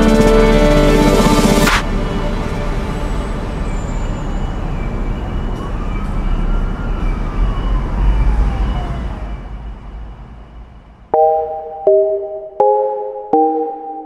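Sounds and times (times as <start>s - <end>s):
distant siren wail: 5.0s - 9.6s.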